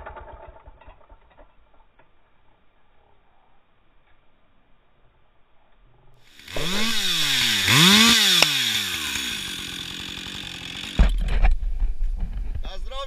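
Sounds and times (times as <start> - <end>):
chainsaw revving: 6.3 - 11.3
sharp tick: 8.2 - 8.6.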